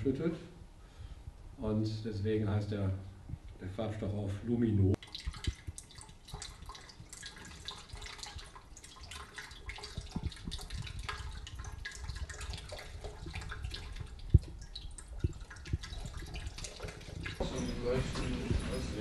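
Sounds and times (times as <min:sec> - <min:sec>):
liquid trickling into glass beaker: 0:05.0 - 0:18.8.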